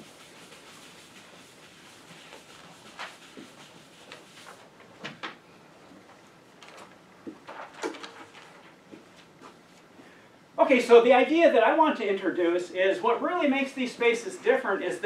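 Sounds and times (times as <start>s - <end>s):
footsteps on classroom floor: 0.0s - 5.4s, 6.0s - 9.9s.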